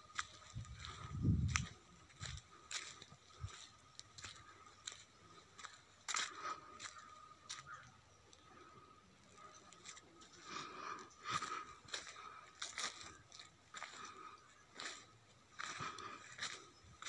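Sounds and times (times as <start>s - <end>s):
footsteps crunching on dry leaves: 0.0s - 7.8s, 9.7s - 17.0s.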